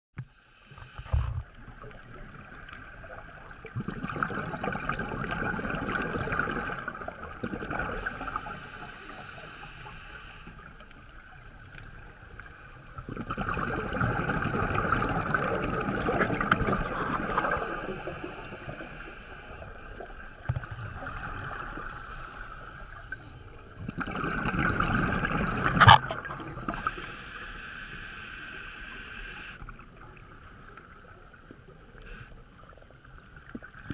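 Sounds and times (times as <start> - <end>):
hissing inhalations: 7.9 - 10.6, 17.2 - 19.7, 26.7 - 29.6
bubbling exhalations underwater: 13.0 - 18.3, 23.9 - 26.7.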